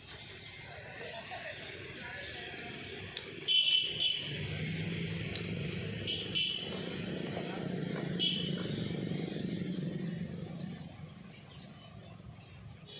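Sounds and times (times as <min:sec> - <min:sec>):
high-pitched squeal: 0:00.0 - 0:12.2
train rumbling along track: 0:04.3 - 0:12.4.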